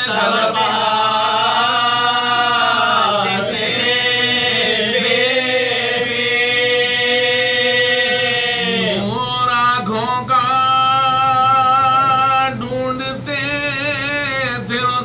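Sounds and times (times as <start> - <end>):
men chanting: 0.0 - 15.0.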